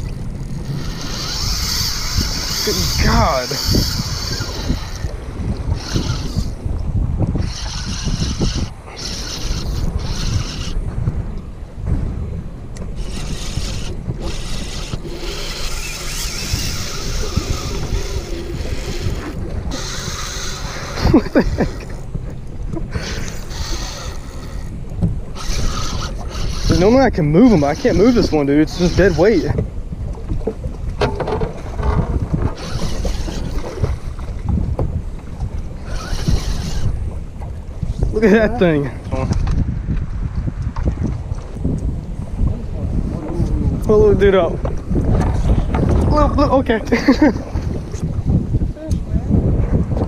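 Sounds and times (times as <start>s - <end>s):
wind buffeting microphone: 0.0s - 50.0s
hiss of wind and water: 7.4s - 29.7s.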